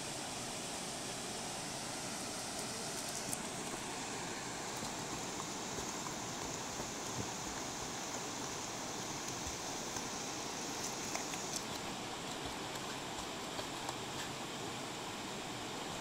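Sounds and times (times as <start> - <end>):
water rushing over weir: 0.0 - 16.0
dog swimming splashes: 3.5 - 14.6.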